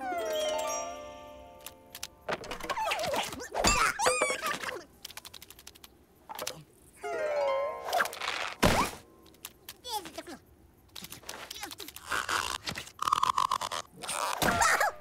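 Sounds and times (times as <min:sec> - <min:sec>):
background music: 0:00.0 - 0:02.4, 0:07.0 - 0:09.2
comic squeaky character noises: 0:02.4 - 0:04.9, 0:11.4 - 0:15.0.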